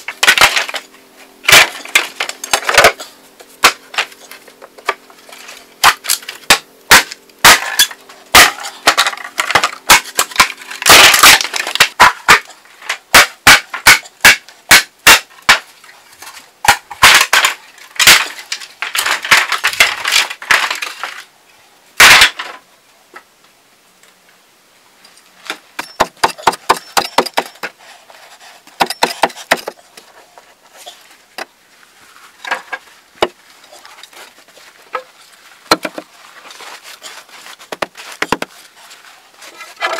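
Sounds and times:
bamboo poles knocking: 0:00.0 - 0:00.9, 0:03.6 - 0:05.1, 0:05.8 - 0:15.7, 0:16.6 - 0:21.2, 0:22.0 - 0:22.6, 0:25.5 - 0:27.8, 0:28.8 - 0:29.8, 0:32.4 - 0:33.4, 0:34.9 - 0:35.1, 0:35.7 - 0:36.1, 0:37.7 - 0:38.6
machete chopping bamboo: 0:00.1 - 0:00.8, 0:01.5 - 0:03.0, 0:03.6 - 0:04.1, 0:05.8 - 0:12.5, 0:13.1 - 0:15.7, 0:16.7 - 0:20.8, 0:22.0 - 0:22.4, 0:25.5 - 0:27.8, 0:28.8 - 0:29.8, 0:35.7 - 0:36.1.

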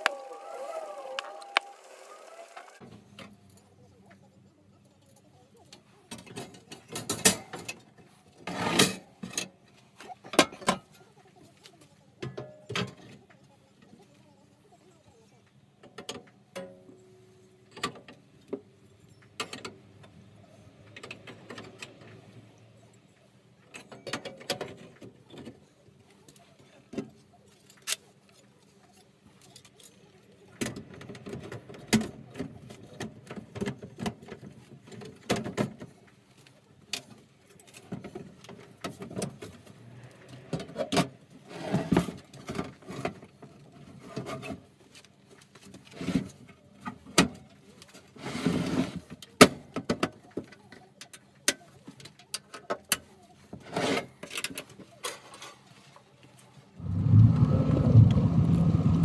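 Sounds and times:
metal scraping and sliding: 0:08.4 - 0:09.1, 0:56.8 - 0:59.0.

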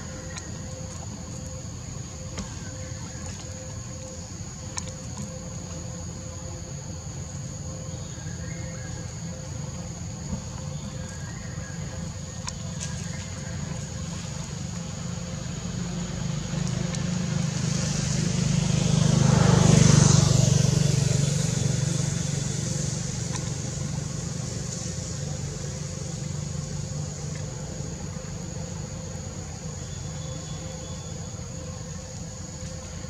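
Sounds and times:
high-pitched insect drone: 0:00.0 - 0:33.0
vehicle engine passing by: 0:15.8 - 0:25.1.

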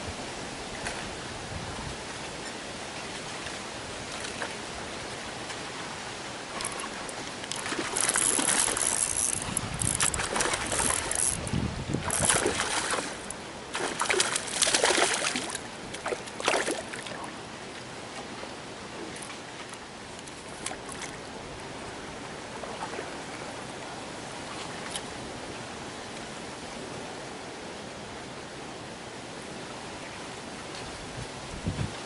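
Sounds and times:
fish splashing in water: 0:06.5 - 0:11.4, 0:12.0 - 0:17.3.

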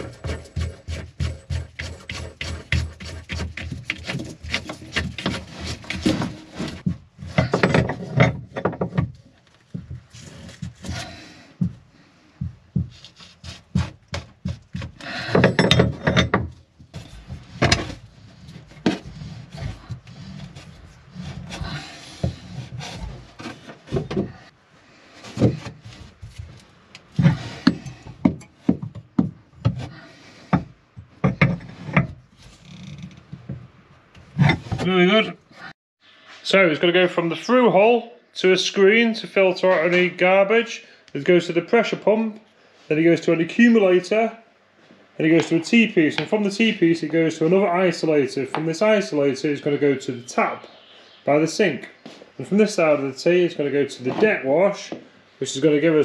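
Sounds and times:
clatter of knocks and clicks: 0:14.1 - 0:18.0.

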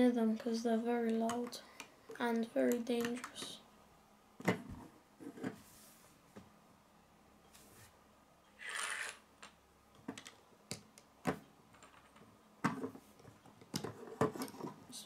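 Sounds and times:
plastic bricks clicking: 0:08.6 - 0:12.3.

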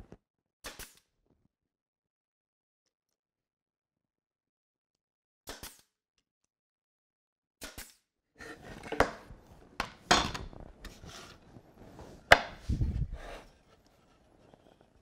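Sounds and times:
wooden parts knocking and clattering: 0:08.4 - 0:10.6.

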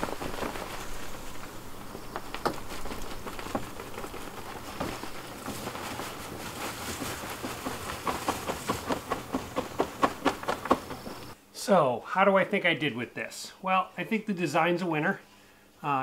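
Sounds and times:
leaves spilling with rustling: 0:00.0 - 0:11.4
quick taps of shaken bag: 0:02.1 - 0:11.4.

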